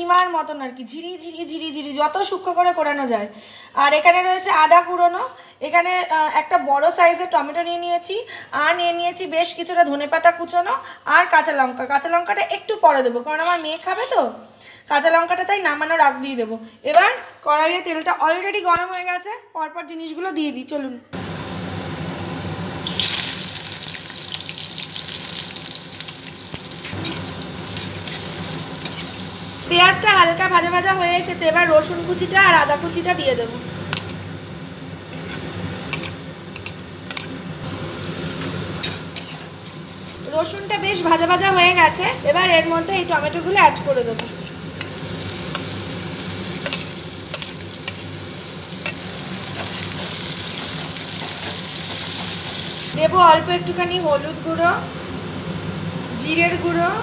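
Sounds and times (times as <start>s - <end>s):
onions sizzling in hot oil: 11.4s - 17.7s, 22.7s - 57.0s
spatula scraping a pan: 26.9s - 29.4s, 35.1s - 37.4s, 38.3s - 40.2s, 44.2s - 48.1s.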